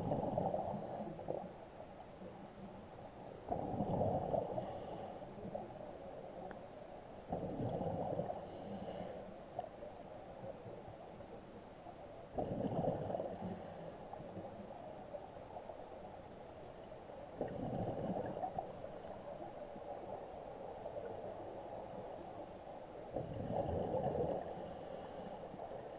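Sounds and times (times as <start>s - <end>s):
exhaled bubbles rumbling: 0.0s - 1.5s, 3.4s - 4.7s, 7.3s - 8.4s, 12.3s - 13.4s, 17.4s - 18.8s, 23.1s - 24.6s.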